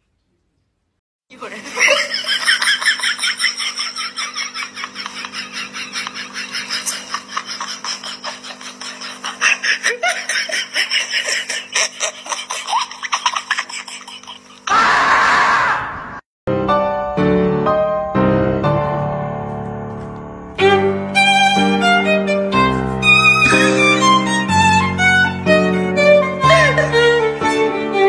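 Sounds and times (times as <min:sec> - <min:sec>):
person laughing hard: 0:01.6 - 0:15.4, 0:26.4 - 0:27.2.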